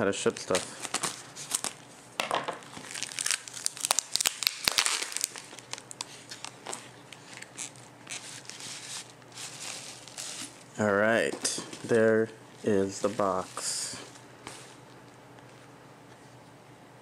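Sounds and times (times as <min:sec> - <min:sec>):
plastic package crinkling and tearing: 0:00.2 - 0:01.8, 0:02.6 - 0:10.6.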